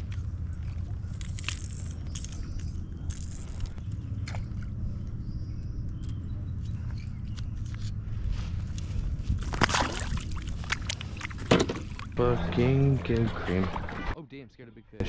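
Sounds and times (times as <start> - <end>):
steady low rumble: 0.0 - 14.2
fish splashing into water: 9.4 - 12.1.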